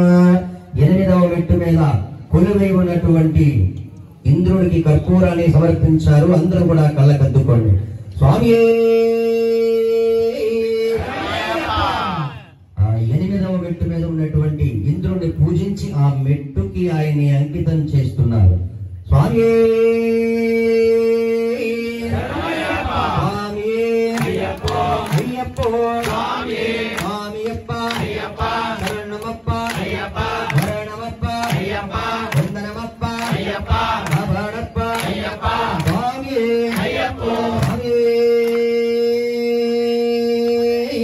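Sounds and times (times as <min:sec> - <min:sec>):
men chanting in unison: 0:10.9 - 0:12.6, 0:21.6 - 0:38.7
sharp claps: 0:24.0 - 0:38.7.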